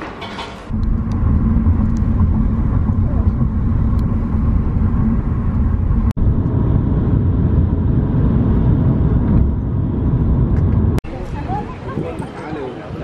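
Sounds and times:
road and engine noise inside car: 0:00.7 - 0:11.1.

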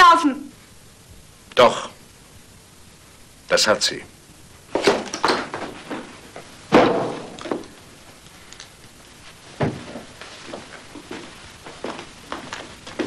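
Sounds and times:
door slamming shut: 0:06.7 - 0:07.4
knocks and thuds: 0:06.7 - 0:07.6, 0:09.6 - 0:10.1.

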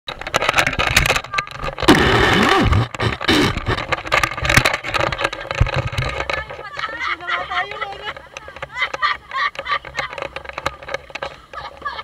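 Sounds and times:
people laughing: 0:06.4 - 0:12.0.

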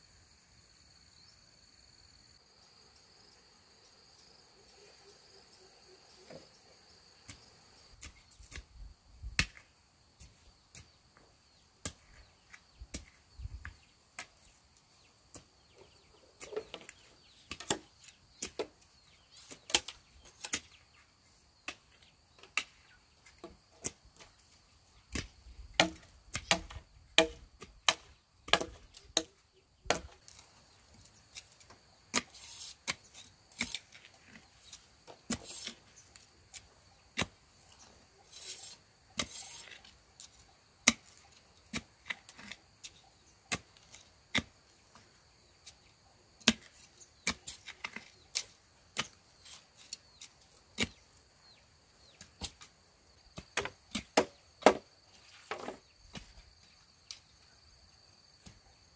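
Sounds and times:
hand tool chopping wood: 0:25.1 - 0:30.3, 0:31.4 - 0:37.8, 0:38.4 - 0:45.0, 0:45.7 - 0:51.0, 0:53.3 - 0:54.9
scraping strokes on wood: 0:29.9 - 0:51.0.

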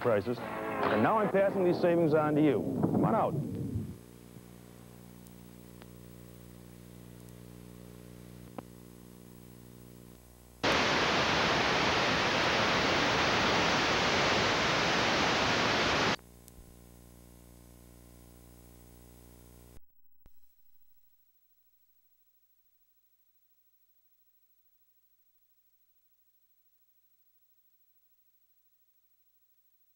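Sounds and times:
loud static hiss: 0:00.0 - 0:19.8
faint electrical hum: 0:01.4 - 0:19.8.

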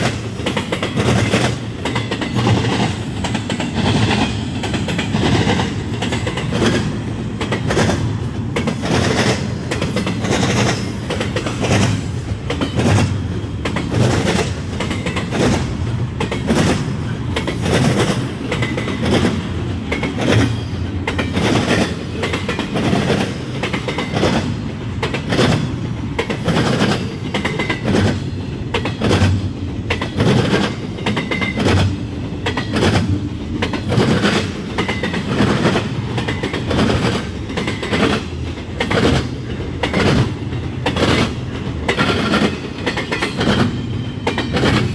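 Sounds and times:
train wheels rumbling on rail: 0:00.0 - 0:44.9
wheels clacking over rail joints: 0:00.0 - 0:44.9.

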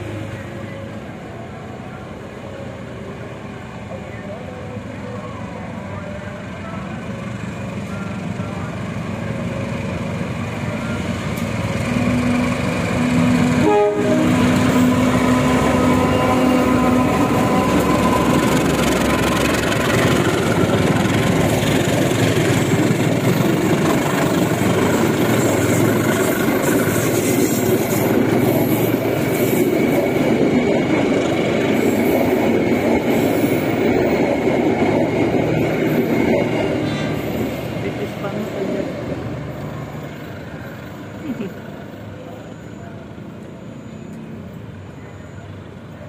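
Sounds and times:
passenger train rumbling on rails: 0:00.0 - 0:46.0
locomotive horn blast: 0:11.9 - 0:18.5.

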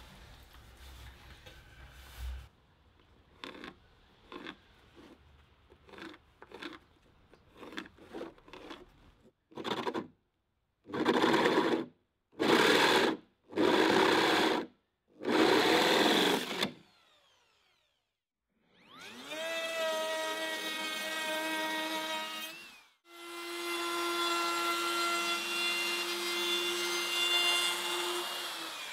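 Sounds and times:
power saw cutting board: 0:10.9 - 0:18.0, 0:18.8 - 0:28.9.

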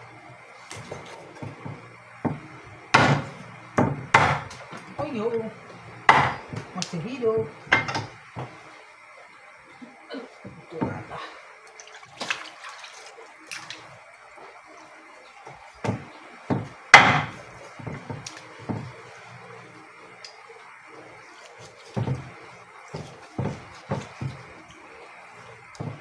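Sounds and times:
cleaver chopping on wooden board: 0:03.0 - 0:04.6, 0:06.1 - 0:06.5, 0:15.8 - 0:17.4.

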